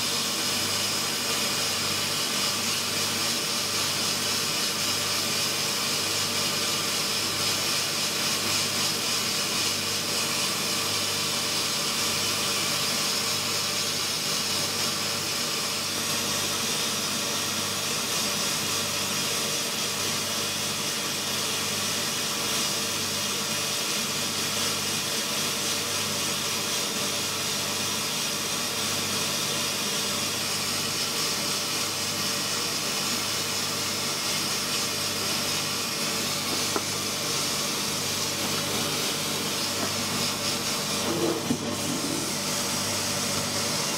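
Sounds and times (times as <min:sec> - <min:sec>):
sandblaster hissing air and grit: 0:29.2 - 0:43.9
steady hum: 0:32.8 - 0:43.9.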